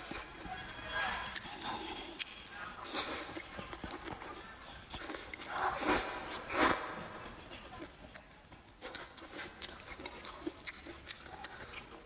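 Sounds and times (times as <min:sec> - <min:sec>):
chewing with wet mouth clicks: 0:00.0 - 0:06.5, 0:07.2 - 0:12.0
person slurping noodles: 0:01.4 - 0:04.3, 0:05.0 - 0:07.2.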